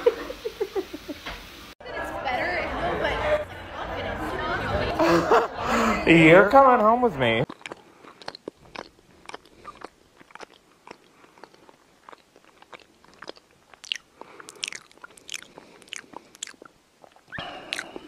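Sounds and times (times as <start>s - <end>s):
cat licking fur: 12.4s - 18.0s.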